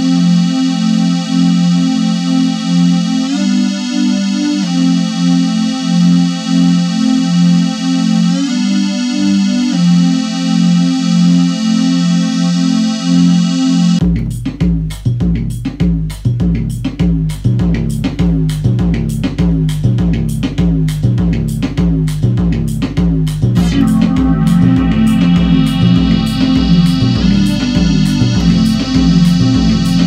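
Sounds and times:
held keyboard chord: 0.0s - 14.0s, 23.6s - 30.0s
synth bass line: 0.0s - 14.1s, 23.4s - 30.0s
drum machine beat: 14.0s - 30.0s.

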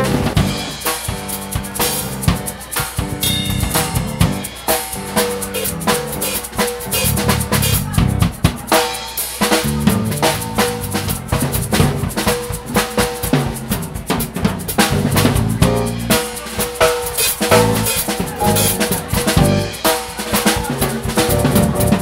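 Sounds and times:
bass drum kicks: 3.1s - 4.5s, 17.5s - 19.8s.

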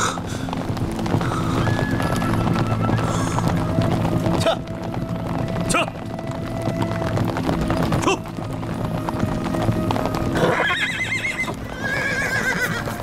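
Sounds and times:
background music: 0.0s - 13.0s
horse hooves clip-clopping on dirt: 0.0s - 13.0s
horse whinnying: 1.2s - 3.7s, 10.2s - 13.0s.

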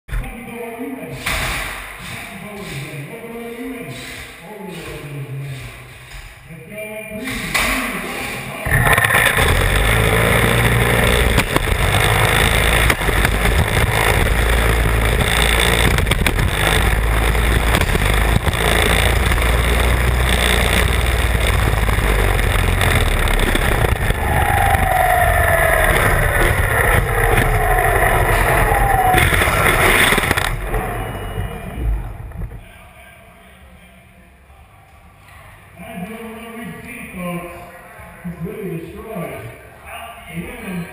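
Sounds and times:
robot drive motors rumbling: 8.6s - 32.6s
falling whines: 8.7s - 32.7s.

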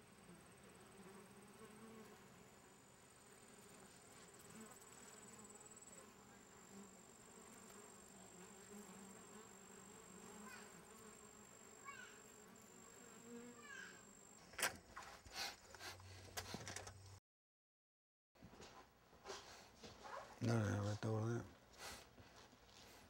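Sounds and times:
honey bees buzzing: 0.1s - 14.5s.

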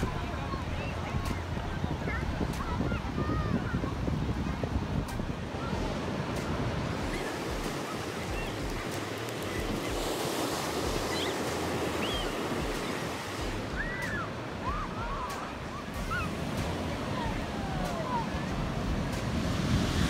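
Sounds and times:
surf washing over sand: 0.0s - 20.0s
wind buffeting microphone: 0.0s - 20.0s.

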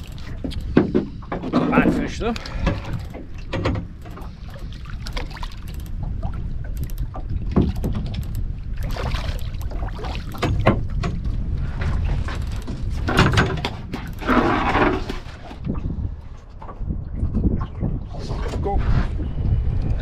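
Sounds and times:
knocks and rattles: 0.0s - 4.4s, 10.3s - 15.3s
low wind rumble: 0.0s - 20.0s.

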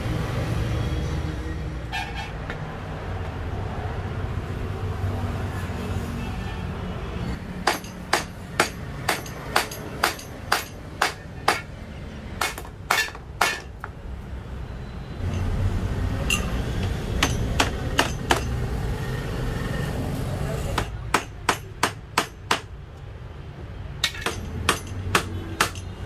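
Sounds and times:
hammer tapping metal frame: 7.6s - 11.7s, 12.4s - 14.0s, 16.3s - 18.6s, 20.8s - 22.7s, 24.0s - 26.0s.

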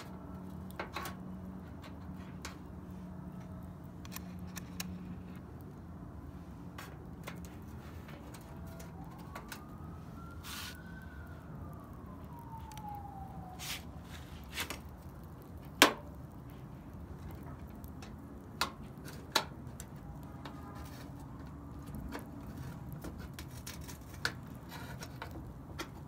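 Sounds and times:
skewers clacking on grill: 0.0s - 2.8s, 17.1s - 26.0s
faint siren: 0.0s - 26.0s.

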